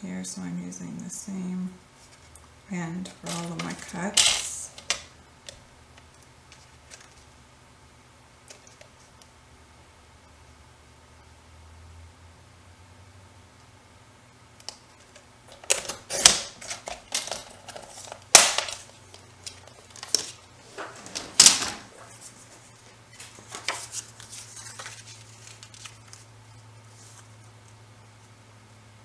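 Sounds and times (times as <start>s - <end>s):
paper rustling: 3.0s - 5.0s, 6.5s - 7.3s, 15.0s - 27.5s.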